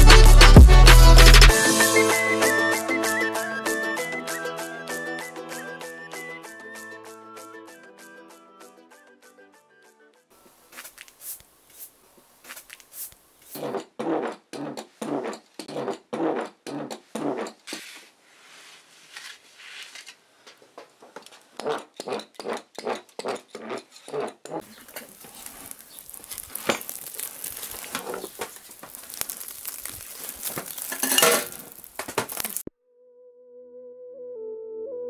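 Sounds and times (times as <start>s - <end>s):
soft flute-like music: 0.0s - 10.0s, 33.0s - 35.0s
wood fire hissing and crackling: 10.5s - 13.6s, 24.6s - 32.6s
scrape: 10.6s - 13.8s, 17.3s - 20.6s.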